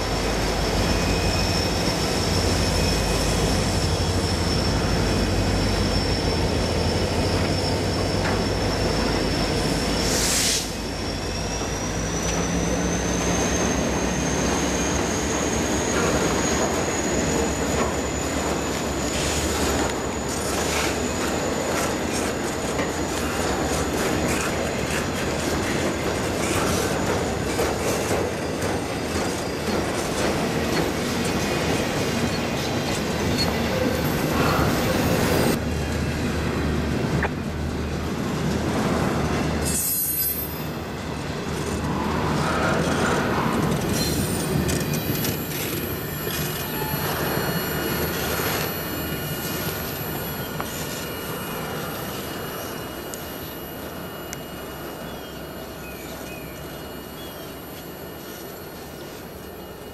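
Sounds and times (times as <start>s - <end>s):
freight train wheels rumbling: 0.0s - 59.9s
high-pitched wheel squeal: 0.2s - 35.6s, 39.6s - 40.9s, 41.9s - 59.9s.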